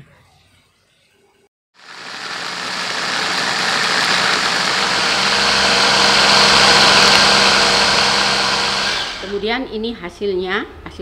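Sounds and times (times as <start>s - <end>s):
blender grinding: 1.8s - 9.5s.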